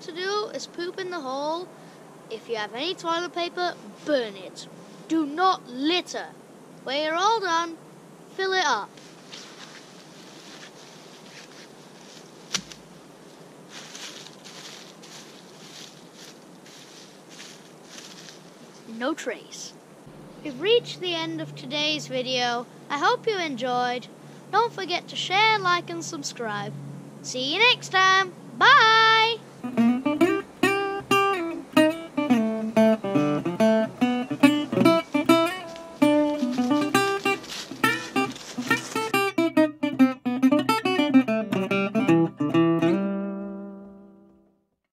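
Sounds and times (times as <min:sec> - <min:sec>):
hands scraping leaves and soil: 0:08.9 - 0:19.0, 0:34.4 - 0:39.3
wooden stick falling on ground: 0:12.5 - 0:12.9
acoustic guitar plucked notes: 0:29.6 - 0:44.6.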